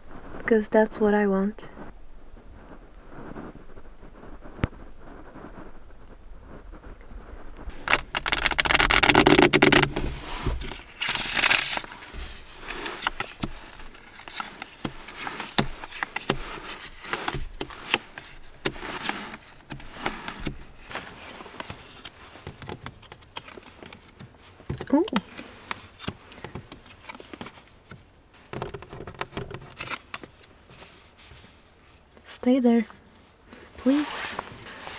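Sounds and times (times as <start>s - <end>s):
playing cards shuffling: 7.6s - 27.9s
cards riffling: 7.7s - 24.3s.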